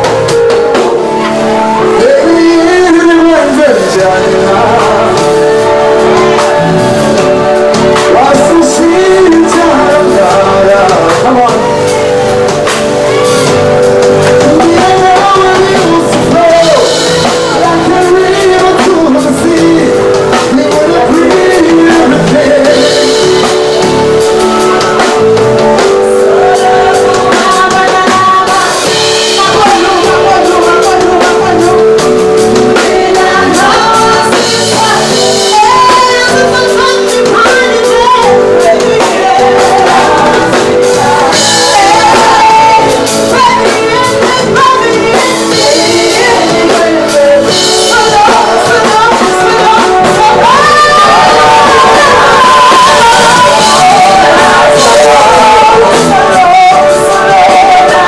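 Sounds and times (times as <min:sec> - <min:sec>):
live band with drums: 0:00.0 - 0:58.0
woman singing into a microphone: 0:00.0 - 0:58.0.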